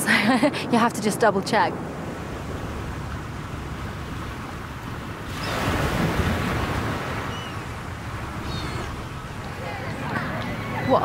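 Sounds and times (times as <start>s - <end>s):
sea surf washing: 1.6s - 11.0s
wave breaking: 2.7s - 11.0s.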